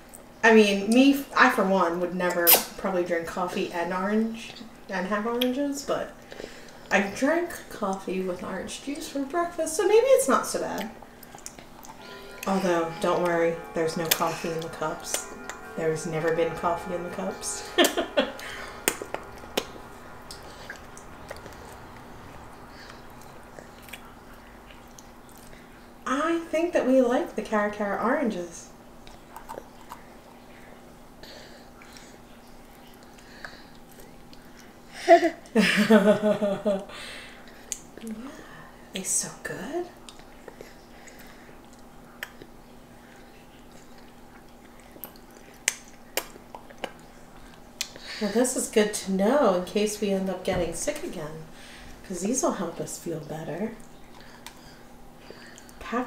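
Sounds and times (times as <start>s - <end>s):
faint steady hum: 0.0s - 56.0s
toddlers chewing: 10.6s - 12.5s, 29.0s - 30.5s, 31.2s - 34.8s, 40.0s - 48.2s, 53.8s - 55.8s
wet chewing and mouth smacks: 43.6s - 48.0s.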